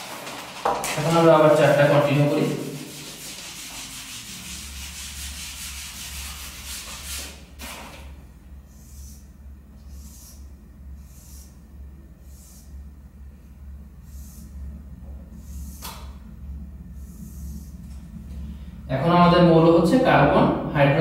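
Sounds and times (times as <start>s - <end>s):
eraser rubbing whiteboard: 0.0s - 7.8s, 8.7s - 12.7s, 14.0s - 14.6s, 15.4s - 16.0s, 17.0s - 17.8s
low electrical hum: 0.0s - 21.0s
marker scratching whiteboard: 0.2s - 7.8s, 8.7s - 11.6s, 12.2s - 12.7s, 14.0s - 14.5s, 15.4s - 16.0s, 17.0s - 17.7s.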